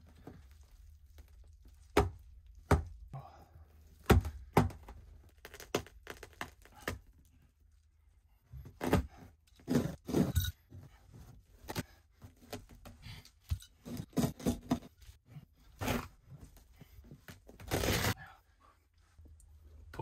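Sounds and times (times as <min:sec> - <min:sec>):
carpet tearing and scraping: 0:04.8 - 0:07.1, 0:08.6 - 0:10.4, 0:13.8 - 0:16.6, 0:17.2 - 0:18.2.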